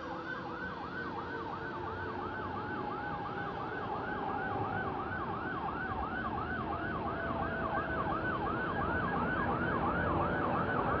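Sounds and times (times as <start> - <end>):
fire truck siren yelping: 0.0 - 11.0.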